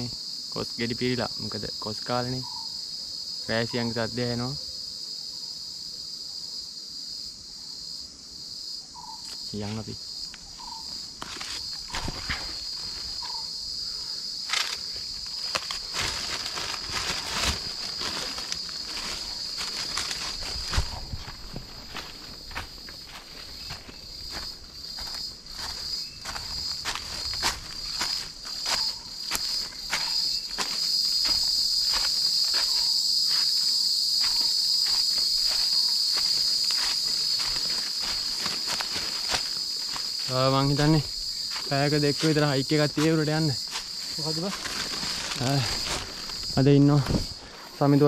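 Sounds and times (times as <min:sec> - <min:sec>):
cicadas buzzing: 0:00.0 - 0:48.0
footsteps: 0:10.3 - 0:13.4, 0:14.5 - 0:47.7.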